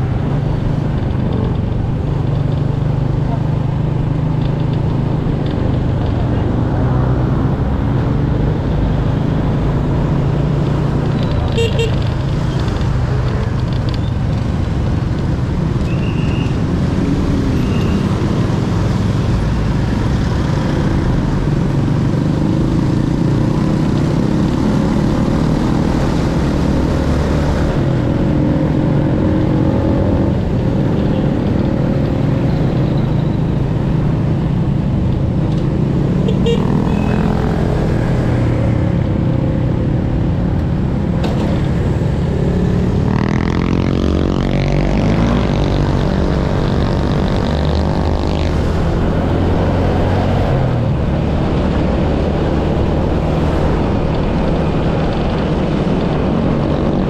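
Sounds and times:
wind and road noise: 0:00.0 - 0:57.0.

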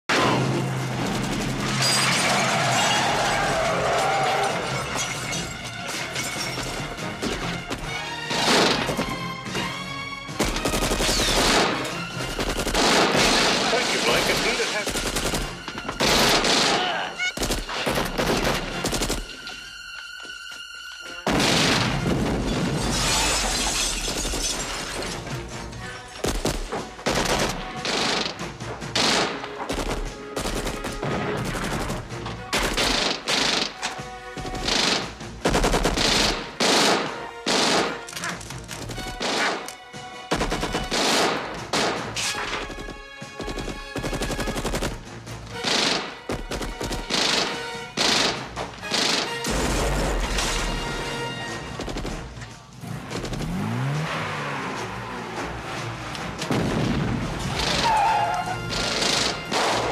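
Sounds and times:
film score music: 0:00.1 - 0:59.9
automatic gunfire bursts: 0:45.6 - 0:49.4.

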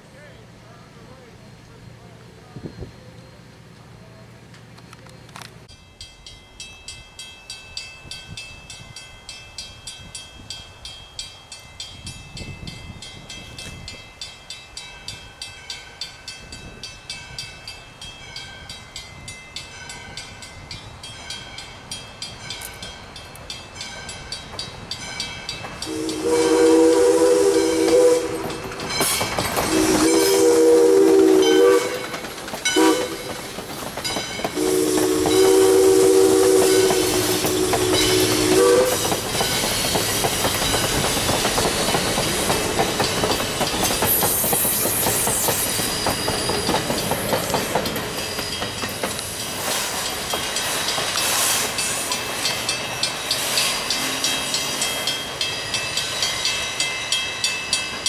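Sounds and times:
crossing bell ringing: 0:04.7 - 0:58.0
train wheels clacking on rails: 0:15.1 - 0:58.0
locomotive chime whistle: 0:25.8 - 0:33.4, 0:34.5 - 0:39.5.

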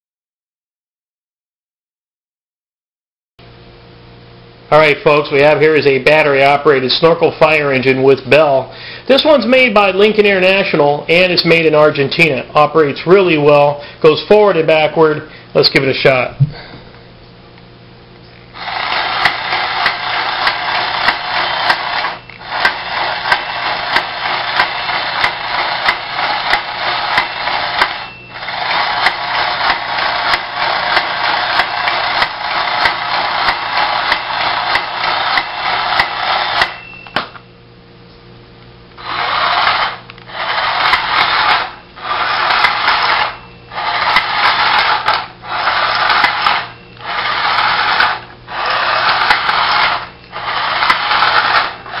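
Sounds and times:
toy motor and gears whirring: 0:18.6 - 0:37.4, 0:39.0 - 0:52.0.

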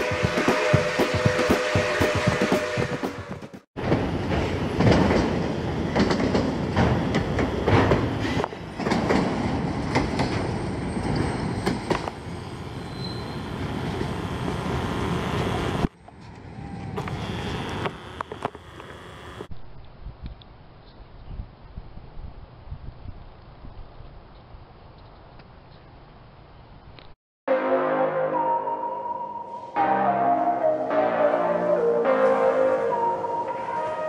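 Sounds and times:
freight train wheels clicking: 0:00.0 - 0:12.2
wind buffeting microphone: 0:21.0 - 0:24.3.

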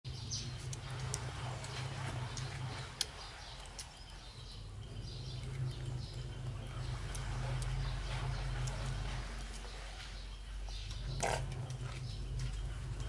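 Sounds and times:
low hum: 0:00.1 - 0:13.0
sharp clicks and smacks: 0:00.4 - 0:04.0.

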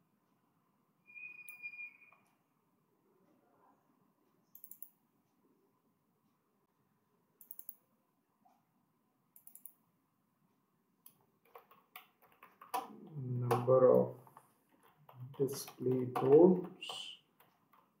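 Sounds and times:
keyboard typing: 0:04.5 - 0:05.0, 0:07.4 - 0:07.8, 0:09.4 - 0:09.8, 0:11.0 - 0:18.0
mouse clicks: 0:04.5 - 0:05.0, 0:07.4 - 0:07.9, 0:09.4 - 0:09.8.

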